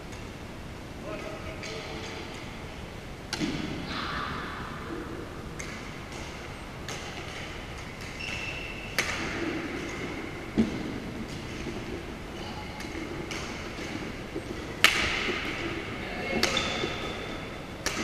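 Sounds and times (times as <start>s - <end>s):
rackets striking shuttlecock: 5.5s - 11.6s, 14.8s - 18.0s
shoe squeak on wooden court: 8.2s - 9.0s.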